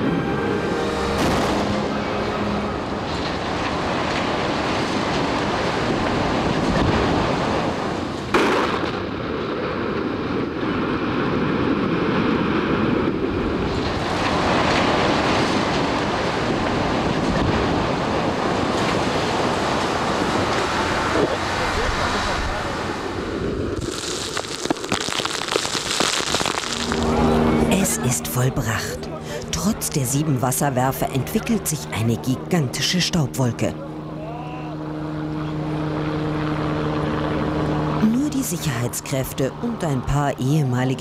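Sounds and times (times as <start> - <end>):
explosive blast: 1.2 - 1.8
steady rushing noise: 9.0 - 29.9.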